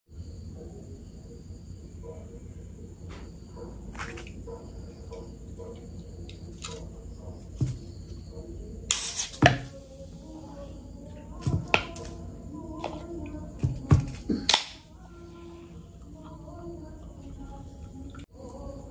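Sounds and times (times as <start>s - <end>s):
can opening hiss: 8.9s - 9.6s.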